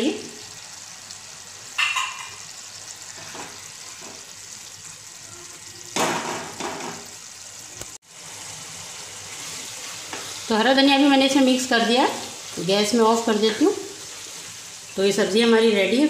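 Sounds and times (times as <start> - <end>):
faint pan sizzle: 0.0 - 16.0
spatula stirring in a pan: 8.1 - 15.0.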